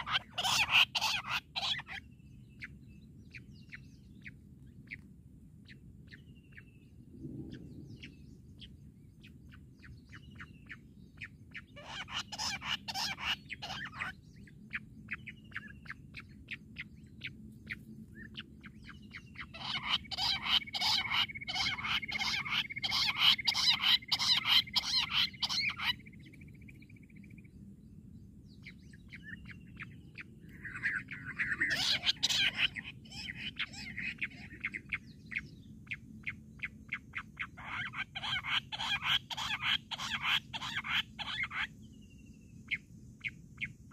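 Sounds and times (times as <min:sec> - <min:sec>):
quail calling harsh notes: 0:00.0 - 0:02.0, 0:11.8 - 0:14.2, 0:19.4 - 0:26.0, 0:30.6 - 0:35.0, 0:37.5 - 0:41.7.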